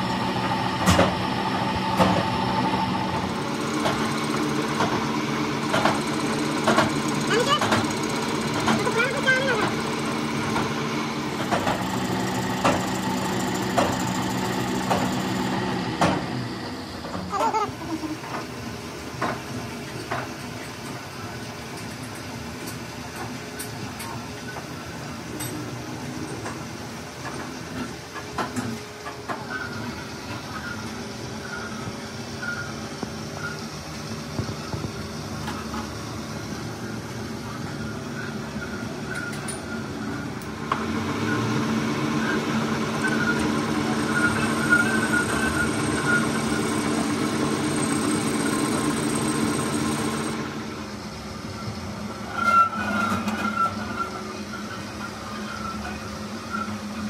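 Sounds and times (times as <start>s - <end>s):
metal lathe running: 0.0s - 17.2s, 38.6s - 51.9s
low workshop hum: 0.0s - 57.0s.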